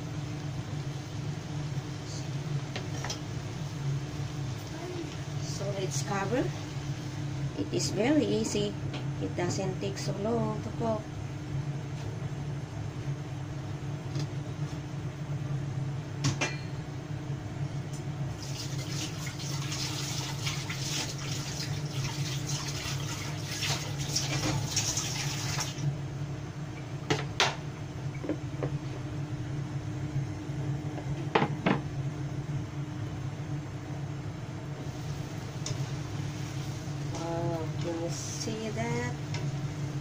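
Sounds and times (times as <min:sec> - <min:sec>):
steady low hum: 0:00.0 - 0:24.0, 0:25.7 - 0:40.0
liquid bubbling and sizzling in pan: 0:00.0 - 0:40.0.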